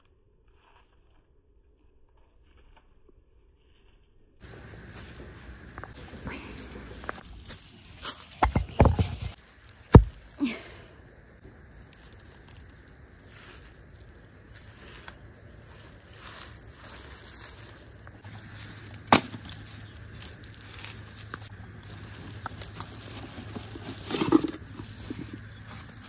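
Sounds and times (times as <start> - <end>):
dry leaves and twigs rustling: 3.6 - 26.0.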